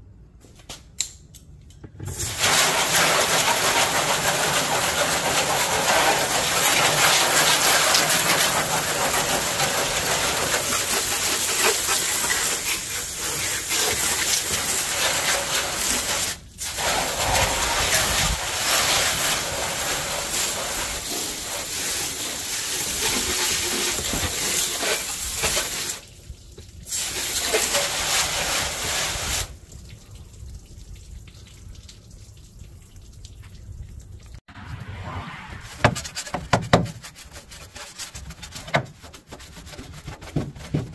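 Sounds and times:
water jet spraying on metal: 2.2s - 26.0s, 26.9s - 29.5s.

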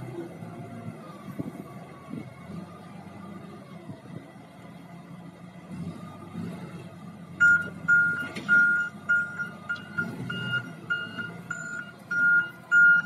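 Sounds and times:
engine running: 0.0s - 13.0s
reversing alarm beeping: 7.4s - 13.0s.

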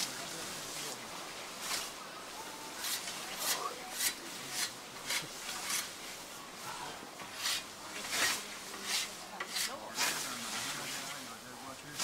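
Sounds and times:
scythes swishing through grass: 7.3s - 10.9s.

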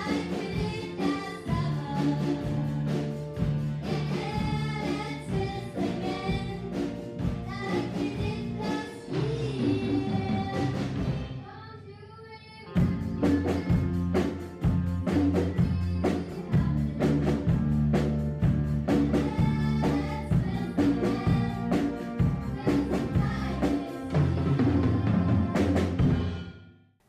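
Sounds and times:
girls singing: 0.0s - 11.0s, 18.9s - 26.0s
drum beat: 0.0s - 11.2s
school band playing: 0.0s - 11.4s, 13.1s - 26.4s.

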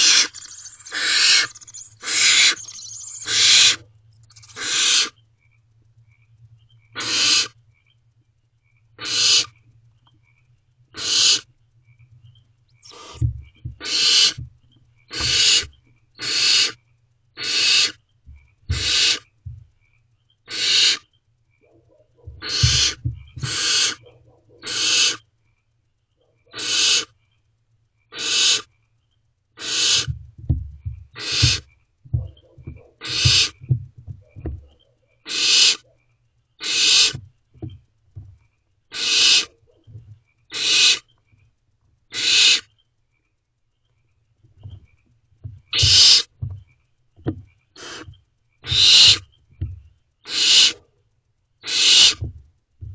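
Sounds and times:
owl chicks hissing calls: 0.0s - 5.2s, 6.9s - 7.6s, 9.0s - 9.6s, 10.9s - 11.5s, 12.8s - 14.4s, 15.1s - 16.8s, 17.4s - 18.0s, 18.7s - 19.3s, 20.5s - 25.3s, 26.5s - 27.2s, 28.1s - 28.7s, 29.6s - 30.2s, 31.1s - 33.7s, 34.6s - 36.0s, 36.6s - 37.2s, 38.9s - 39.8s, 40.5s - 41.1s, 42.1s - 42.7s, 45.7s - 46.4s, 47.8s - 49.4s, 50.2s - 50.9s, 51.6s - 52.3s
faint steady hum: 0.0s - 52.9s.

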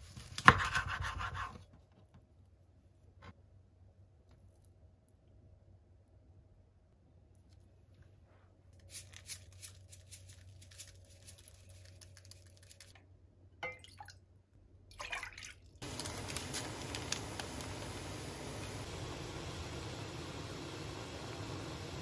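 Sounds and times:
water boiling in pan: 15.8s - 22.0s.

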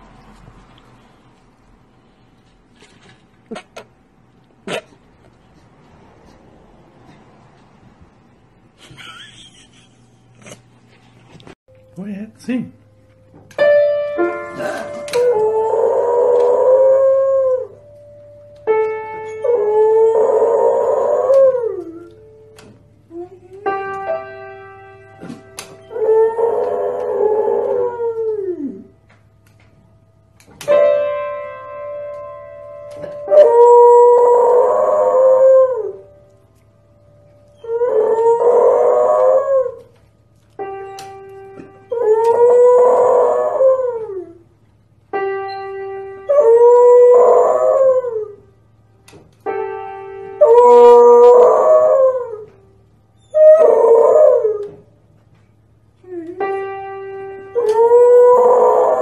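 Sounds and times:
piano notes: 11.7s - 59.0s
dog howling: 14.5s - 17.8s, 19.4s - 22.1s, 25.8s - 28.9s, 33.2s - 36.0s, 37.6s - 40.0s, 41.9s - 44.4s, 46.3s - 48.4s, 50.4s - 52.5s, 53.2s - 54.9s, 57.5s - 59.0s.

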